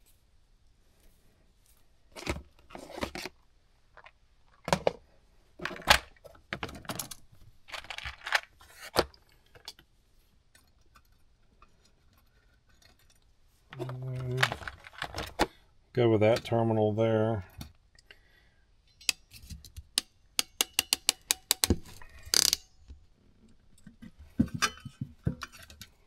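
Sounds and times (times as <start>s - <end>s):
connectors rattling in plastic box: 5.6s - 8.9s, 13.8s - 15.5s.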